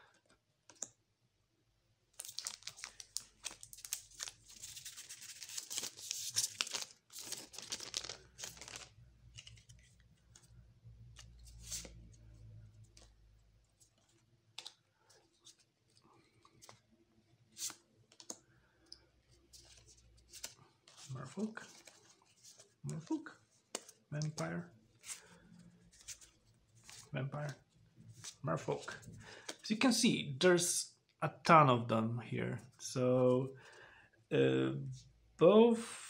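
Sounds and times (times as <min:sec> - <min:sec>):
foil wrapper tearing and crinkling: 0:02.2 - 0:08.9.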